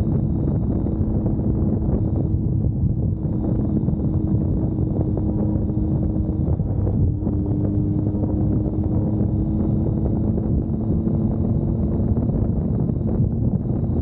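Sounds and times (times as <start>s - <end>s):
vehicle engine running: 0.0s - 14.0s
wind noise on microphone: 0.0s - 14.0s.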